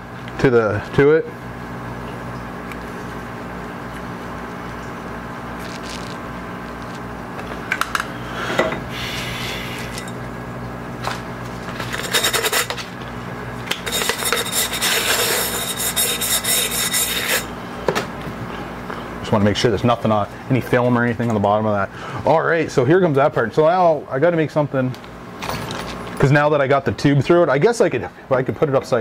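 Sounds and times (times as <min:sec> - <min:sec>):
steady hum: 0:00.0 - 0:29.0
cloth rag scrubbing glass: 0:13.9 - 0:17.5.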